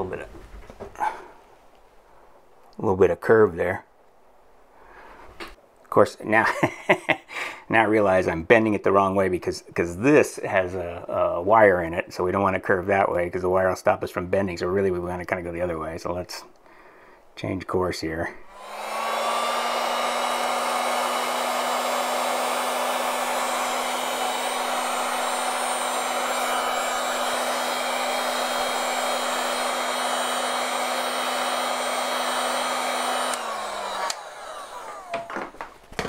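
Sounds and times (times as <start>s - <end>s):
heat gun blowing: 18.4s - 35.4s.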